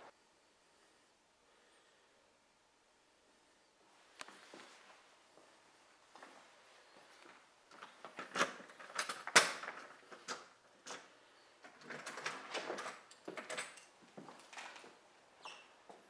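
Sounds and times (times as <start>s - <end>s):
door lock and handle rattling: 8.2s - 11.0s.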